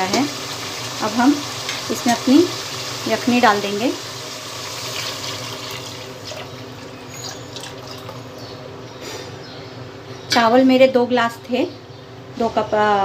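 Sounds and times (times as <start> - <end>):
liquid pouring into a pan: 4.0 - 8.4.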